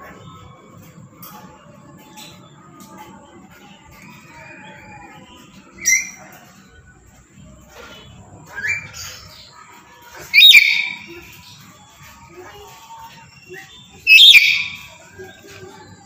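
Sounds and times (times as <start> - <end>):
parrot screeching calls: 10.3 - 11.1, 14.1 - 14.9.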